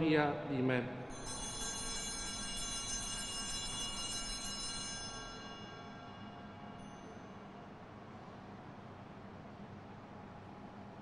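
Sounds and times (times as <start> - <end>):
bells ringing: 1.1 - 7.7.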